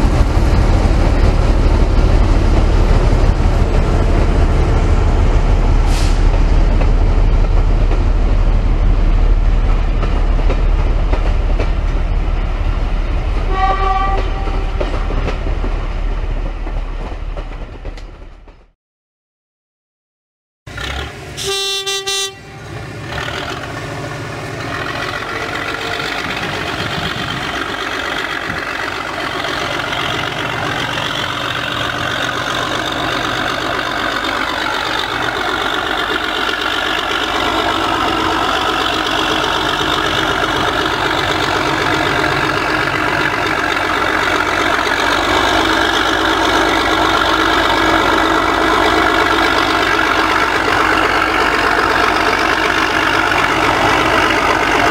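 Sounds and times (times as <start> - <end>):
diesel locomotive engine running: 0.0 - 18.6, 20.7 - 54.9
locomotive horn toot: 13.5 - 14.7, 20.8 - 22.8.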